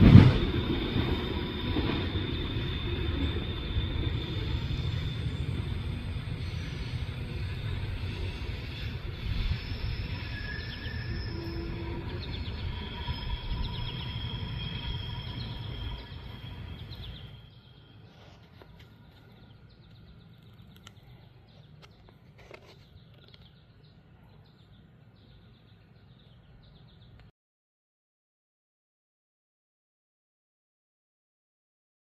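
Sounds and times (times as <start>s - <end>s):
freight train rumbling: 0.0s - 22.3s
high wheel squeals: 0.4s - 18.1s
birds chirping: 2.3s - 27.3s.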